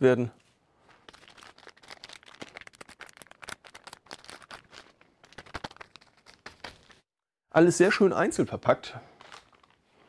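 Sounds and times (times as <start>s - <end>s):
plastic bags crinkling: 0.8s - 7.1s, 9.1s - 10.0s.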